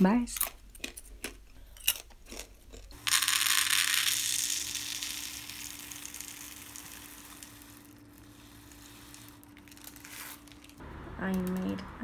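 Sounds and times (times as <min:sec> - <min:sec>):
popcorn kernels pouring into cup: 0:03.0 - 0:10.8.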